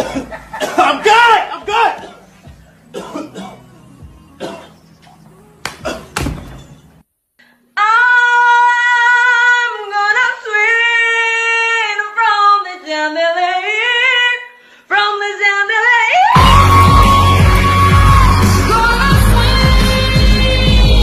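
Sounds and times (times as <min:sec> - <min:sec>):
woman singing unaccompanied: 0:07.8 - 0:21.0.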